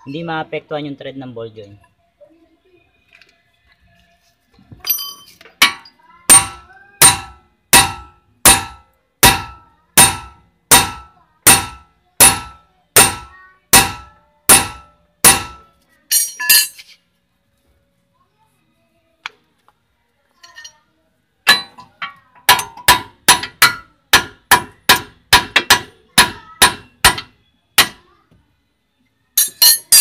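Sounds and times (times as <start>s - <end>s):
light metal clinks: 4.8s - 5.9s, 20.4s - 20.9s, 29.4s - 30.0s
hammer striking metal: 4.9s - 16.8s, 21.5s - 28.0s, 29.4s - 30.0s.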